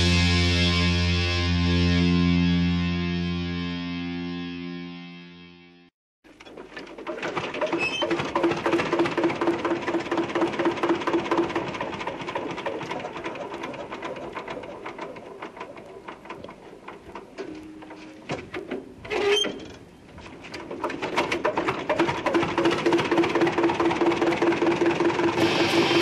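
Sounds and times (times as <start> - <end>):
instrumental punk rock: 0.0 - 5.6, 25.4 - 26.0.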